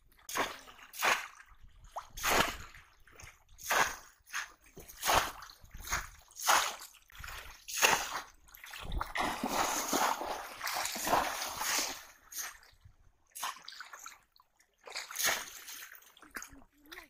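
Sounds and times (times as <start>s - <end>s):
river water splashing: 0.3s - 17.0s.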